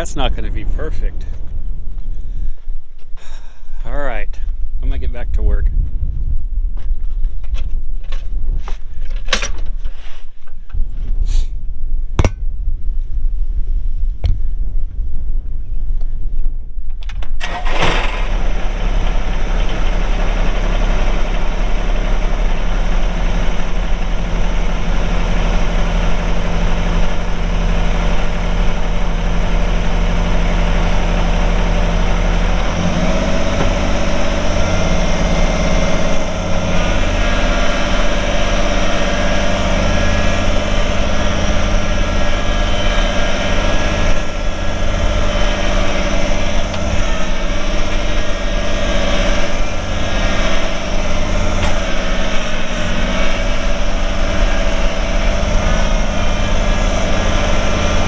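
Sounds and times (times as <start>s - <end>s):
tractor diesel engine idling and revving: 0.0s - 2.6s, 17.4s - 58.0s.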